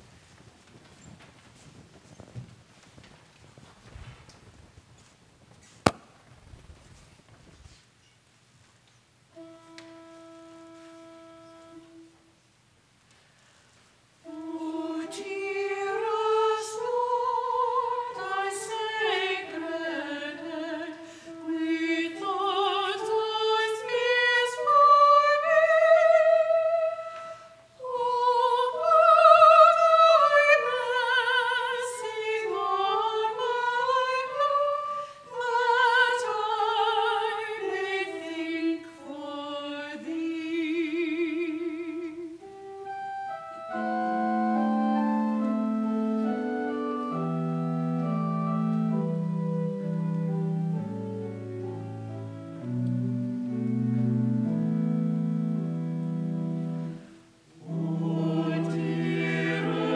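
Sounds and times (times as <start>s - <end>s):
unaccompanied choir singing: 14.3s - 27.2s, 27.8s - 40.4s, 57.6s - 59.9s.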